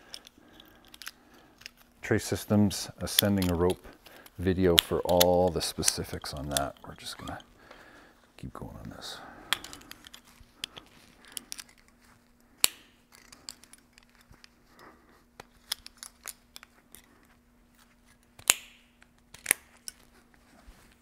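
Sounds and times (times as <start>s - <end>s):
faint steady hum: 0.0s - 21.0s
metal climbing hardware snapping: 3.1s - 7.4s.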